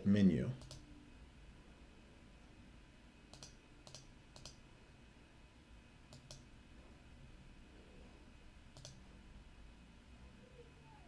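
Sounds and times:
faint computer mouse clicks: 0.6s - 0.8s, 3.3s - 4.6s, 6.1s - 6.5s, 8.7s - 9.0s.

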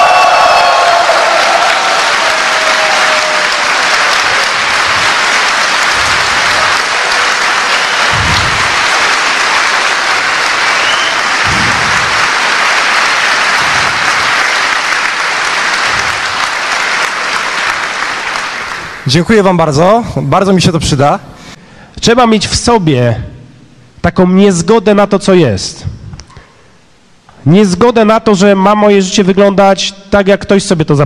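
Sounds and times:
shouted cheer: 0.0s - 18.3s
audience applauding: 0.0s - 19.2s.

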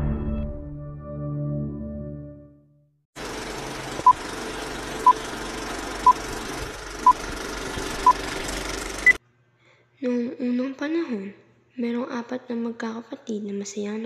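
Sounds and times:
film projector clatter and hiss: 3.2s - 9.2s.

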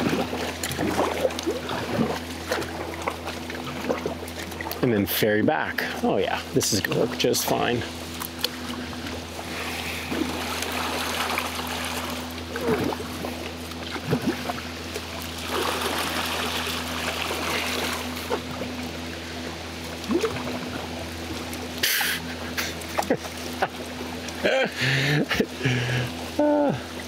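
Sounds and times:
paddle blades dipping in water: 0.0s - 5.0s, 8.1s - 24.4s
steady low hum: 0.0s - 27.0s.

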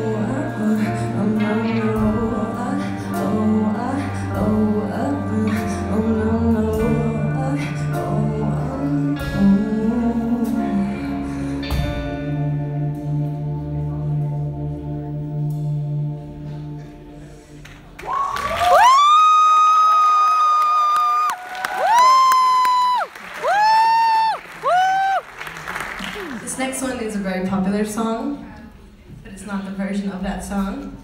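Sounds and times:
person singing: 0.0s - 17.4s
live band playing: 0.0s - 18.0s.

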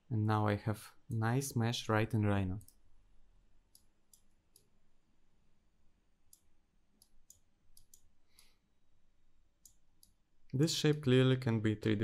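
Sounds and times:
faint computer mouse clicks: 6.3s - 8.5s.

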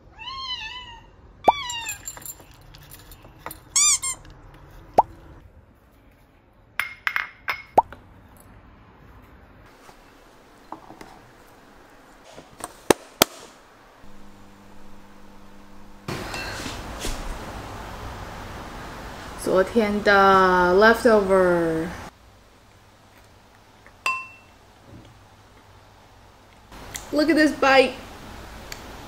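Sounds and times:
cat meow: 0.0s - 2.0s
microwave oven humming: 13.7s - 19.1s.

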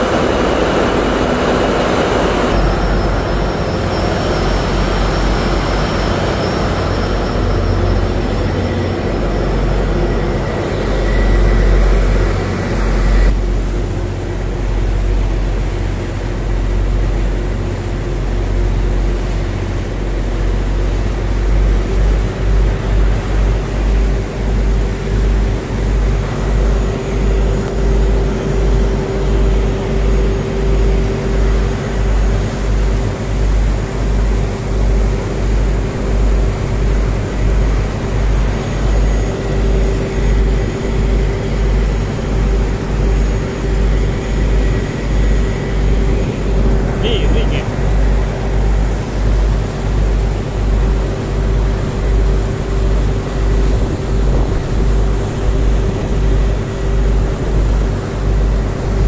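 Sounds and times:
propeller wash churning: 0.0s - 59.0s
tugboat engines rumbling: 0.0s - 59.0s.

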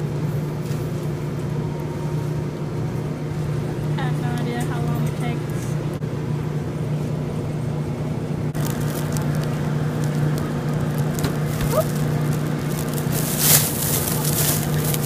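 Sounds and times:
steady low hum: 0.0s - 15.0s
plastic bag crinkling: 8.6s - 15.0s.

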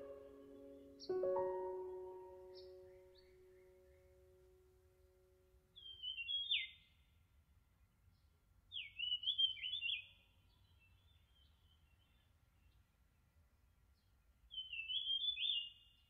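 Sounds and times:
bird-like chirping song: 0.0s - 4.5s, 5.7s - 7.1s, 8.7s - 12.8s, 14.5s - 16.0s.

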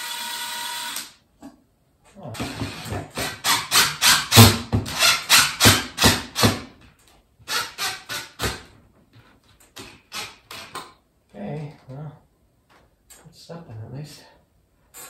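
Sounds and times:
cordless drill short bursts: 0.0s - 1.2s.

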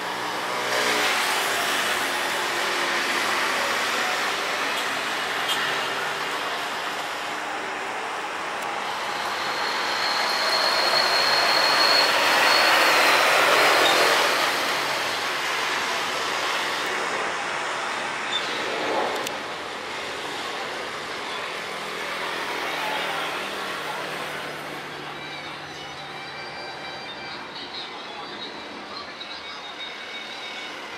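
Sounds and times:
jet engines roaring at takeoff: 0.0s - 24.9s
high jet engine whine: 0.0s - 30.9s.

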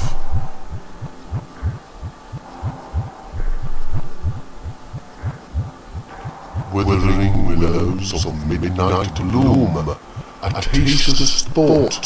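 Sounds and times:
deep thudding electronic beat: 0.0s - 6.8s
faint sustained tones: 0.0s - 12.0s.

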